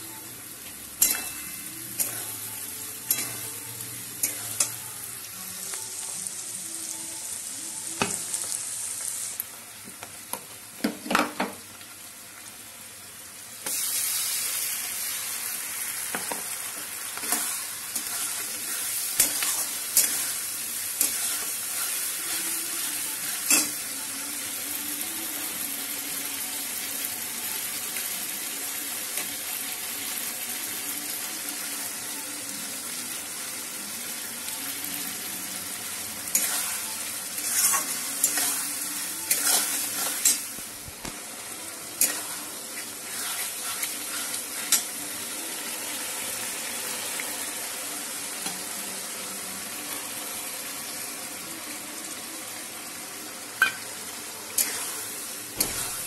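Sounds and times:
vegetables sizzling in a wok: 0.0s - 56.0s
metal spoon scraping a pan: 3.0s - 3.5s, 17.2s - 22.6s, 36.3s - 40.6s, 42.0s - 45.0s, 54.6s - 56.0s.

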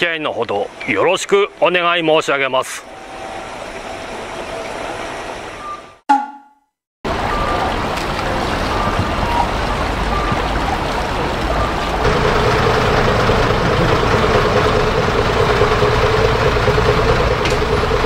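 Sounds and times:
bus diesel engine droning: 7.1s - 18.0s
fountain water bubbling and splashing: 7.1s - 18.0s.

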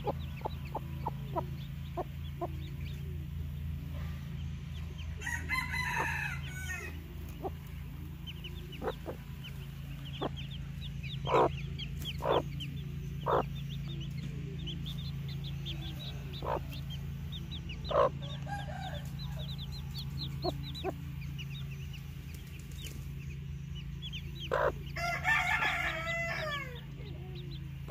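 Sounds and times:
hen clucking: 0.0s - 22.5s, 23.2s - 27.9s
chicks peeping: 0.0s - 27.9s.

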